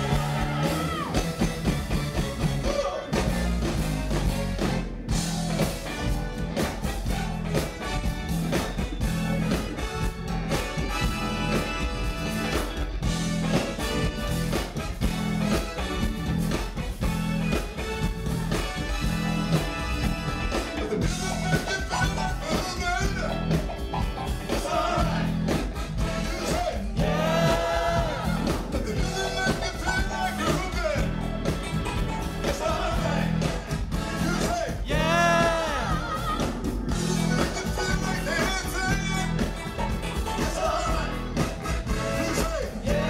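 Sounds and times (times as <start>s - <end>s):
sung lead vocal: 0.0s - 3.6s, 20.8s - 31.6s, 32.2s - 43.0s
electric bass line: 0.0s - 43.0s
live funk band playing: 0.0s - 43.0s.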